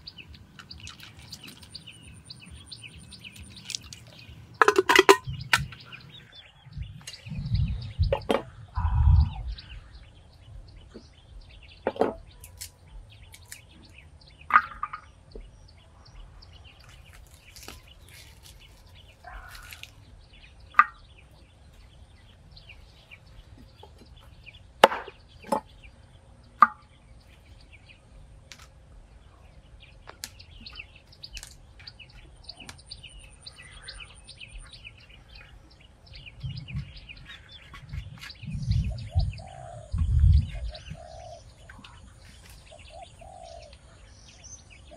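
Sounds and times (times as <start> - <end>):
birds chirping: 0.0 - 44.9
dull low thumps: 6.7 - 9.8, 36.2 - 41.1.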